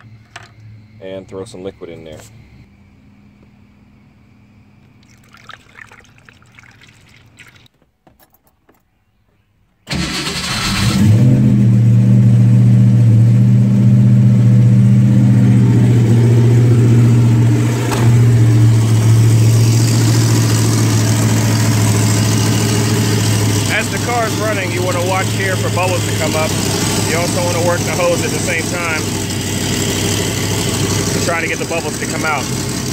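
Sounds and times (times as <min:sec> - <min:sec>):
coolant pouring into funnel: 0:05.0 - 0:07.7
car engine fast idle: 0:09.9 - 0:11.2, 0:18.8 - 0:32.9.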